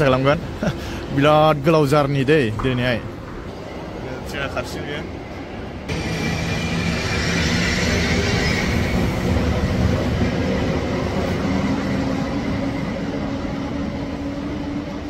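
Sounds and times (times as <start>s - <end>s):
train running rumble: 5.9s - 15.0s.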